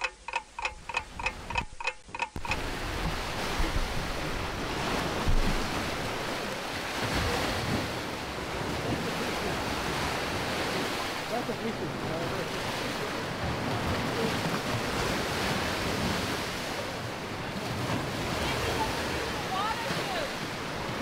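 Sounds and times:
pitched ticks: 0.0 - 2.6
wind on microphone: 2.4 - 11.1
waves splashing against rocks: 2.4 - 21.0.

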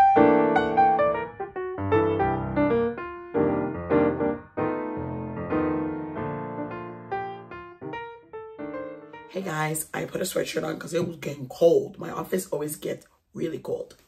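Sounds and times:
piano music: 0.0 - 10.2.

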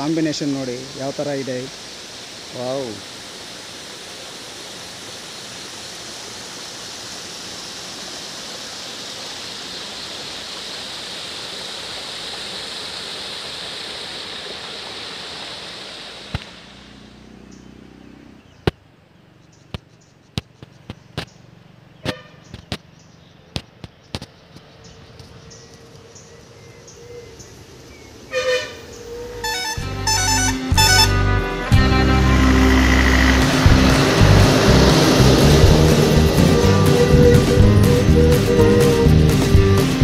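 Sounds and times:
stream rushing over rocks: 0.0 - 17.1, 31.7 - 40.0.

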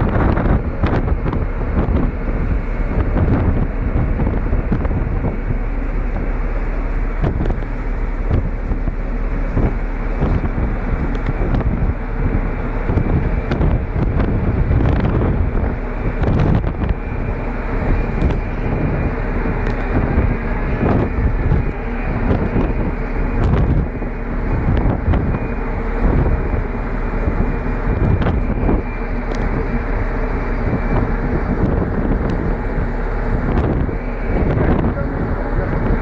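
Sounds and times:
steady hum: 0.0 - 36.0
water rushing along hull: 0.0 - 36.0
wind buffeting microphone: 0.0 - 36.0.

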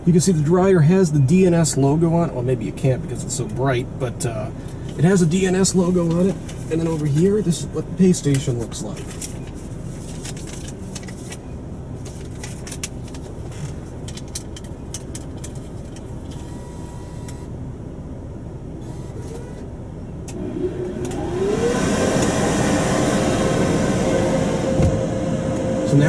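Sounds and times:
car idling: 0.0 - 16.5, 17.5 - 26.0
car wash dryer blower: 20.3 - 26.0.

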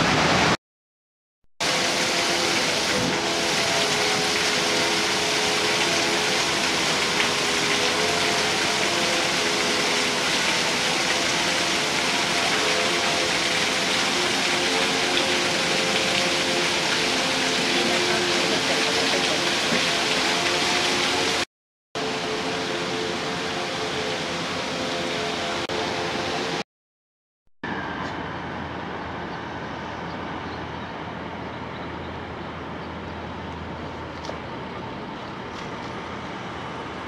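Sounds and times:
waterfall splashing onto stones: 1.6 - 21.5.

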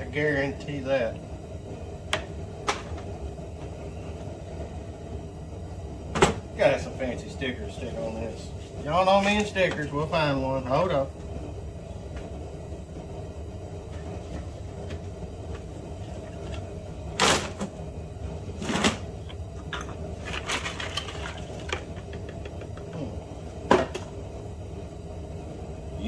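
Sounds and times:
steady low hum: 0.0 - 26.0
small objects clicking and knocking: 19.3 - 23.0.

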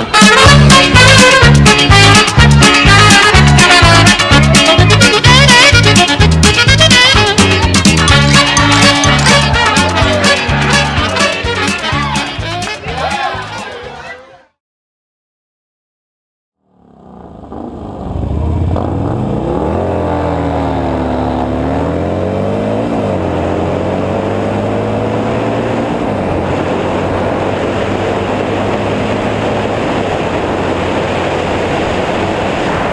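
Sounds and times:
motorcycle engine accelerating: 16.6 - 32.9
wind rushing on microphone: 23.4 - 32.9.

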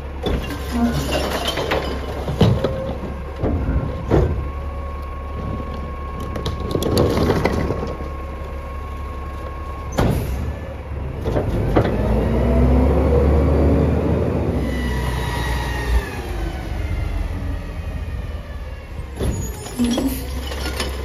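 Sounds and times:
hydraulic packer whine: 0.0 - 21.0
bottles and cans clattering: 19.8 - 21.0.

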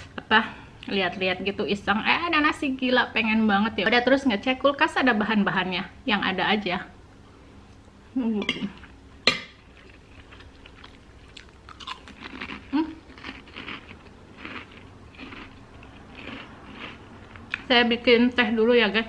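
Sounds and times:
cracker crunching: 9.6 - 17.7
person chewing food: 9.6 - 17.7.

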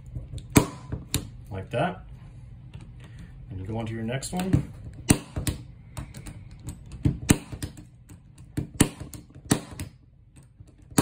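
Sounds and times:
punch-down tool popping: 4.4 - 11.0.

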